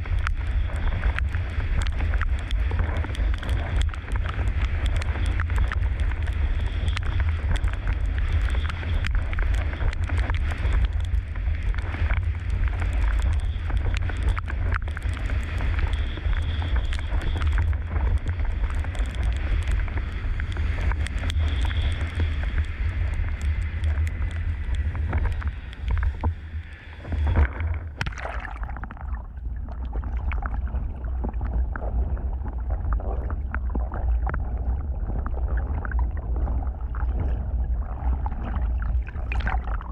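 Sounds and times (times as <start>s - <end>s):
muffled underwater sound: 0.0s - 39.9s
wind buffeting microphone: 0.0s - 39.9s
splash: 26.9s - 34.4s, 35.0s - 39.9s.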